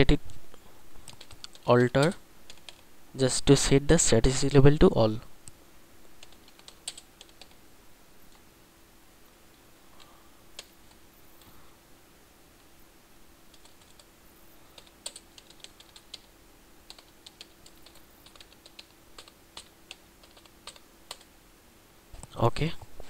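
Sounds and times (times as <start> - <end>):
faint steady hum: 0.0 - 23.0
typing on computer keyboard: 1.0 - 2.8, 6.2 - 7.6, 13.5 - 14.1, 14.7 - 16.3, 16.9 - 21.3.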